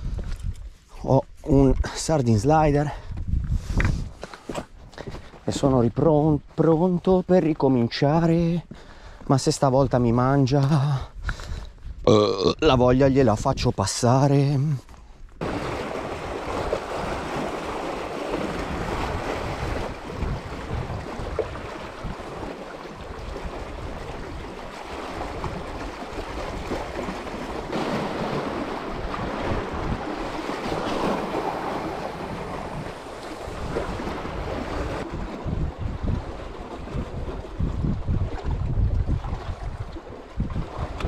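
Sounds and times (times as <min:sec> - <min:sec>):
wind buffeting microphone: 0:00.0 - 0:06.6, 0:09.8 - 0:12.1, 0:15.4 - 0:41.0
sea waves washing against rocks: 0:15.4 - 0:41.0.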